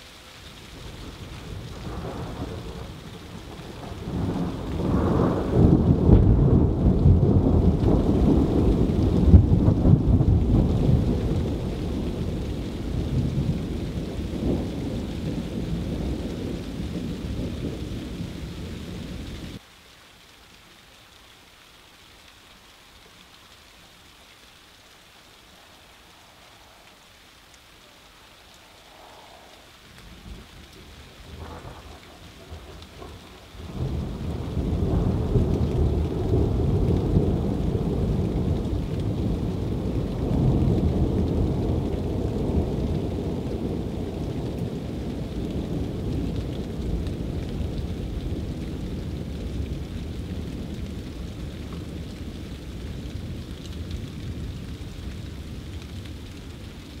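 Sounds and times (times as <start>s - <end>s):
steady rain: 0.0s - 57.0s
thunder rumbling: 0.6s - 19.6s, 28.3s - 57.0s.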